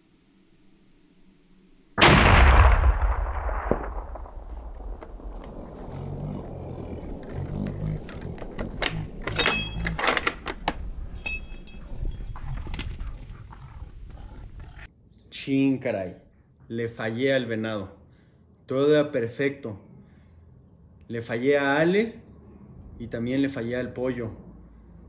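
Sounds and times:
rifle shot echoing: 2.0 - 6.3
rustling: 3.4 - 14.9.

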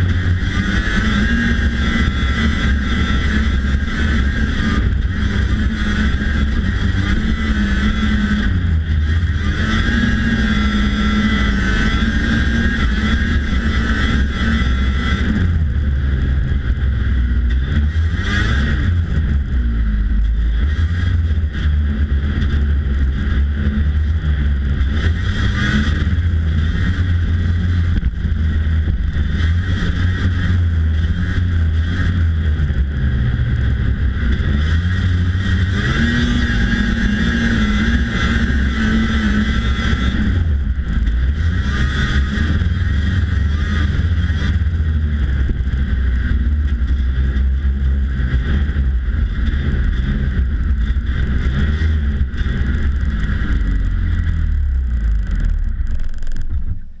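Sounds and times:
snowmobile engine revving: 0.0 - 57.0.

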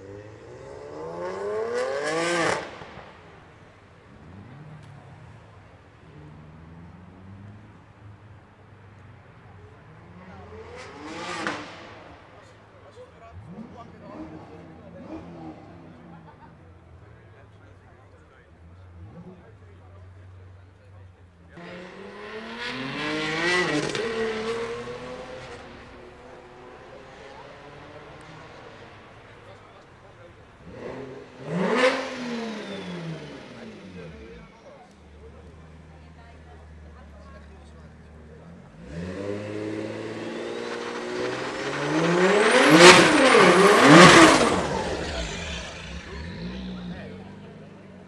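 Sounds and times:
turbocharged car engine revving: 0.0 - 5.4, 10.1 - 16.5, 21.5 - 48.0.

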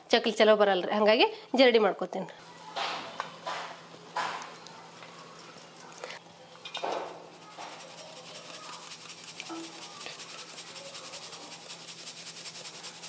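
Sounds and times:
flour rattling in steel sieve: 6.6 - 13.0.

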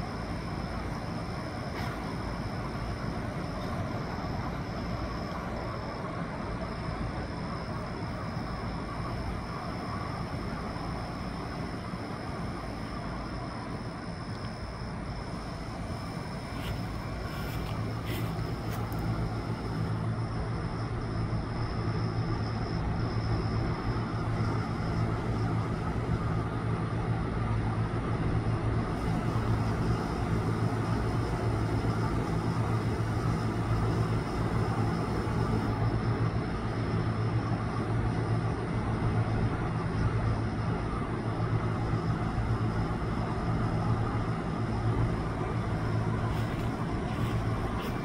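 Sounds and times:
low mechanical hum: 0.0 - 48.0.

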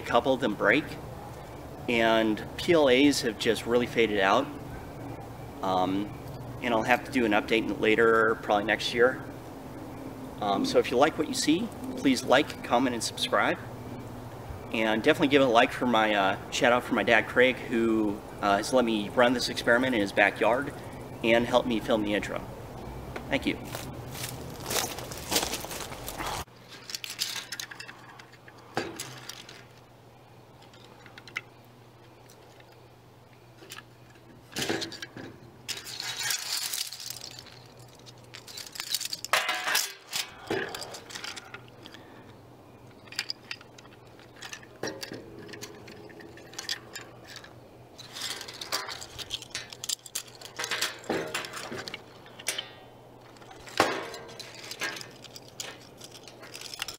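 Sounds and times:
steady low hum: 0.0 - 56.9
plastic and metal clicks and clinks: 53.7 - 56.9.

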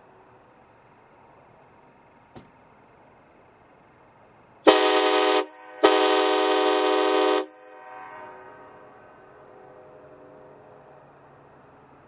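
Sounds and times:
air train horn blasts: 4.7 - 9.2.

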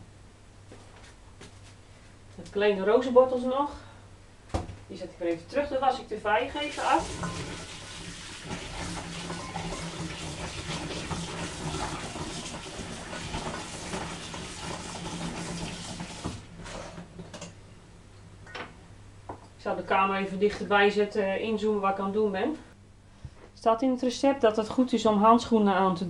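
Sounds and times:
tap running into sink: 7.0 - 16.4.

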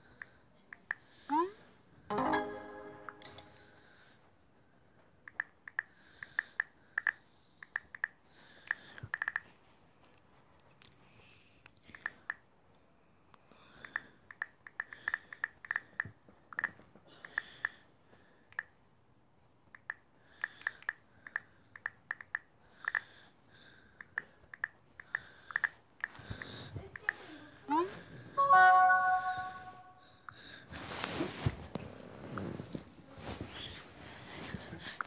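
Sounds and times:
touchscreen typing clicks: 3.1 - 3.7.

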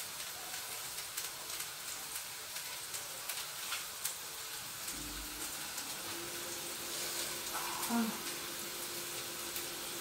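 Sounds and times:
zucchini sizzling in hot oil: 0.0 - 10.0.

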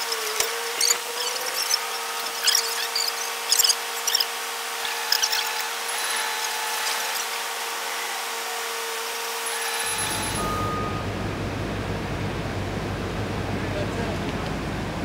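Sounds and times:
construction machinery hum: 0.0 - 15.0
low engine rumble: 9.9 - 15.0.

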